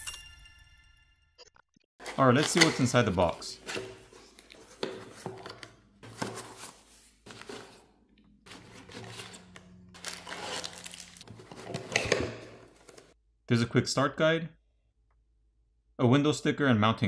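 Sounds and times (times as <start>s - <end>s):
cardboard rustling and scraping: 2.0s - 7.9s, 8.5s - 13.2s.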